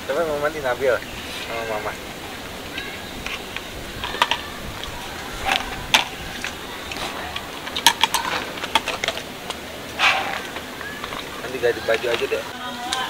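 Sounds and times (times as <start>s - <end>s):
background hiss: 0.0s - 13.0s
objects clinking and knocking: 3.2s - 12.3s.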